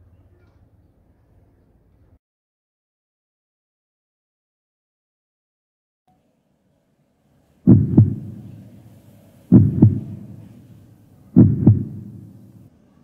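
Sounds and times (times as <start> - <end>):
heartbeat double thumps: 7.7 - 8.6, 9.5 - 10.6, 11.4 - 12.5.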